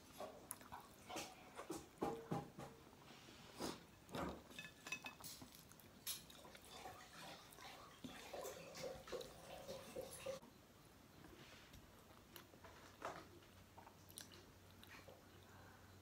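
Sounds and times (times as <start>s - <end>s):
person chewing: 13.8s - 15.6s.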